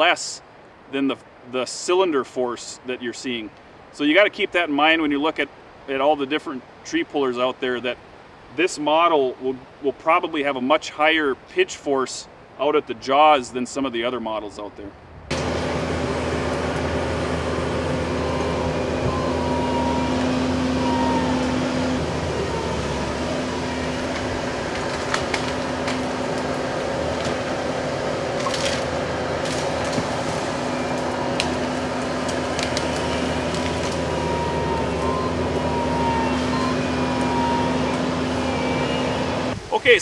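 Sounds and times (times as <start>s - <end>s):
wood and roots cracking: 15.3s - 38.8s
diesel engine running under load: 15.3s - 39.7s.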